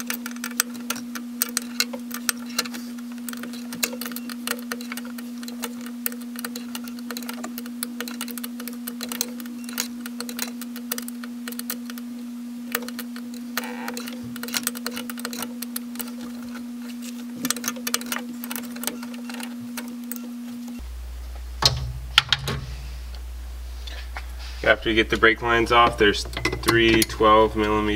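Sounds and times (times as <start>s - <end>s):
wrench metallic clicks: 0.0s - 12.1s, 12.7s - 16.6s, 17.4s - 20.2s, 25.8s - 27.9s
steady low hum: 0.0s - 27.9s.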